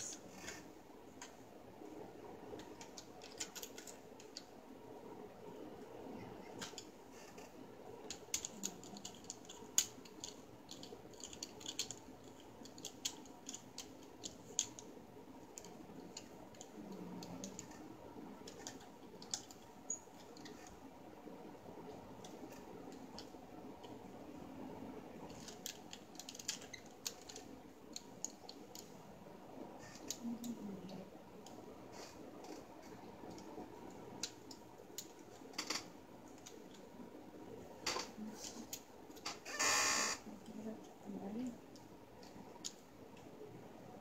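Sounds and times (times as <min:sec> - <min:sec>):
plastic parts clicking: 0:08.1 - 0:14.9, 0:25.3 - 0:28.9.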